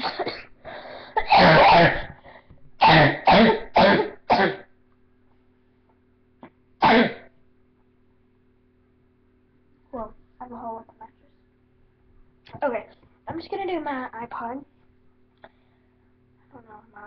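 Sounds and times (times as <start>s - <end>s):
person coughing: 0.0s - 2.2s, 2.8s - 4.7s, 6.8s - 7.4s.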